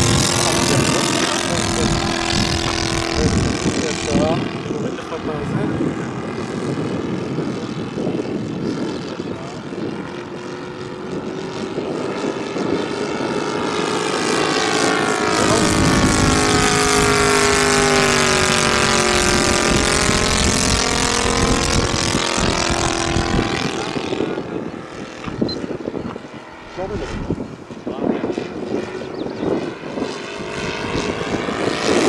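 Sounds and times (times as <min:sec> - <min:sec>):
model plane engine fly-past: 0:00.0 - 0:32.0.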